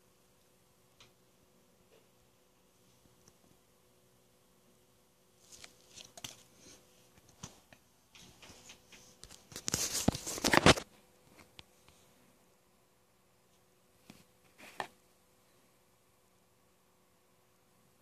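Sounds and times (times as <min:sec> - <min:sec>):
packaging rustling and crinkling: 0:05.4 - 0:06.5.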